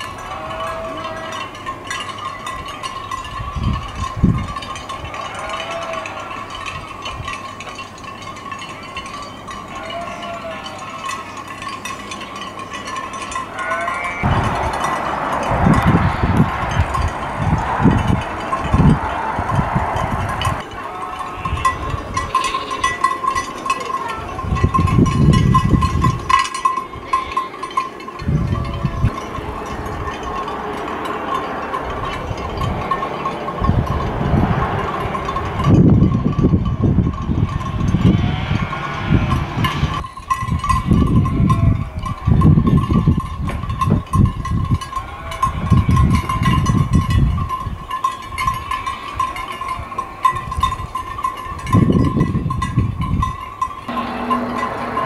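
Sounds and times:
wind rumbling on microphone: 0:00.0 - 0:05.3, 0:14.1 - 0:23.0, 0:24.2 - 0:26.4, 0:28.2 - 0:55.0
sheep bell clinking: 0:00.0 - 0:55.0
low rumble: 0:14.3 - 0:20.6.

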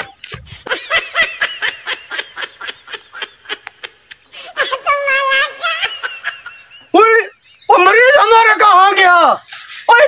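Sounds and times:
high-pitched snickering laugh: 0:00.0 - 0:07.5.

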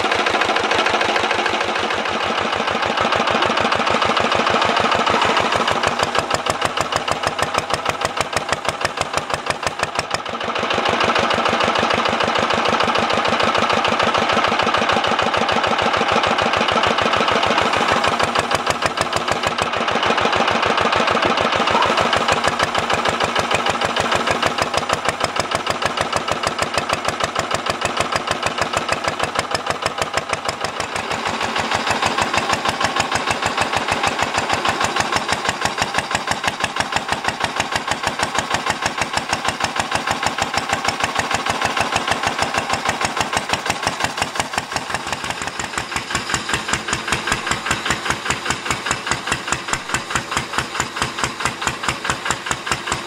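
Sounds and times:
diesel engine running: 0:00.0 - 0:53.0.

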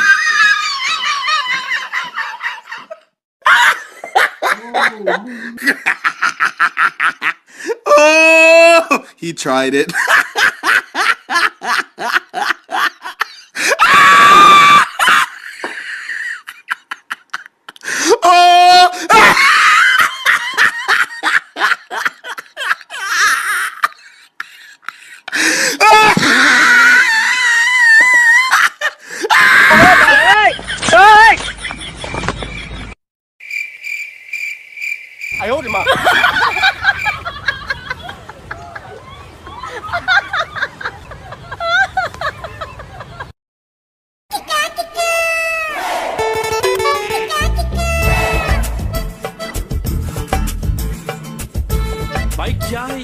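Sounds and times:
people laughing: 0:00.0 - 0:07.4, 0:09.9 - 0:13.8, 0:19.2 - 0:25.4, 0:26.2 - 0:32.8, 0:35.5 - 0:43.3
person laughing: 0:00.0 - 0:09.0, 0:35.8 - 0:38.9
people talking: 0:04.5 - 0:05.8, 0:35.4 - 0:36.1, 0:52.4 - 0:53.0
cricket chirping trill: 0:33.4 - 0:37.2
high-pitched scream: 0:45.0 - 0:49.1.

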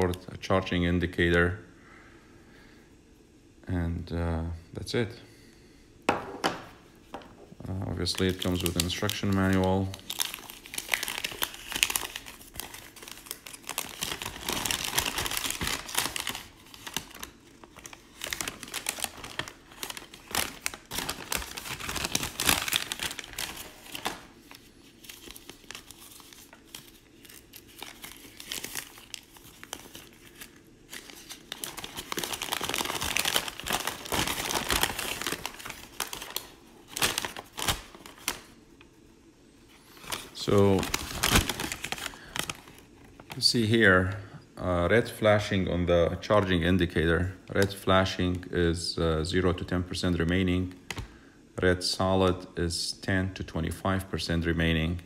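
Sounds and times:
paper crinkling and rustling: 0:07.7 - 0:38.6, 0:39.7 - 0:43.6.

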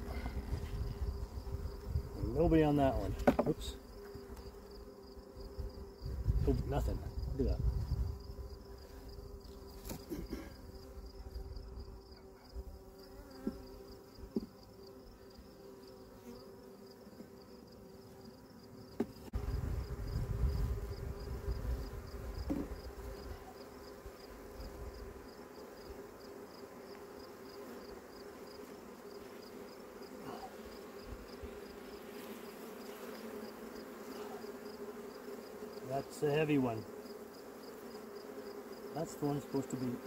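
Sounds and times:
bees humming: 0:00.0 - 0:40.0.

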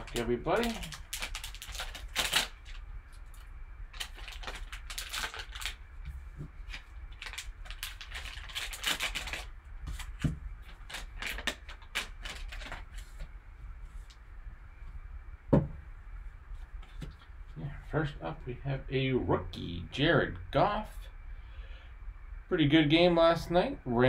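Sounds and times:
foil wrapper crinkling and tearing: 0:00.0 - 0:05.8, 0:06.6 - 0:13.2.

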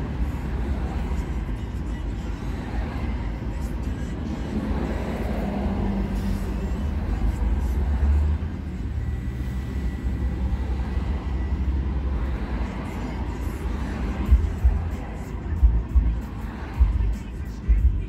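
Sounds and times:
car engine drone: 0:00.0 - 0:18.0
road noise: 0:00.0 - 0:18.0.

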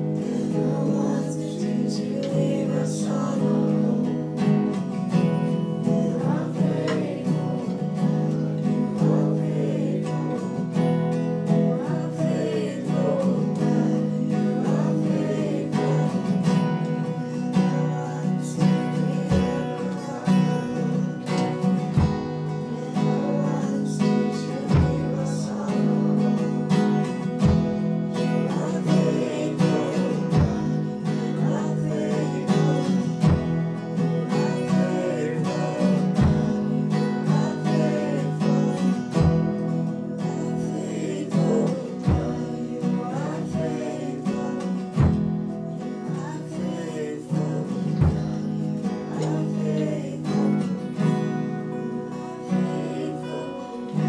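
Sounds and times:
woman singing: 0:00.0 - 0:51.0, 0:51.8 - 0:54.0
worship band playing: 0:00.0 - 0:54.0
kick drum thudding: 0:27.4 - 0:28.0.

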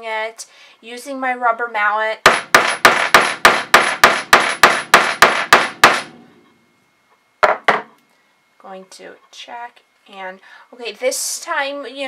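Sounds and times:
mallet striking metal punch: 0:02.3 - 0:06.2.

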